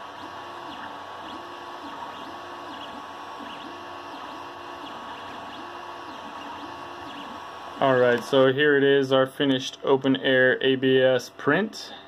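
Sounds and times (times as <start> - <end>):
stepper motors whirring: 0.0 - 8.5
steady high hum: 0.0 - 12.0.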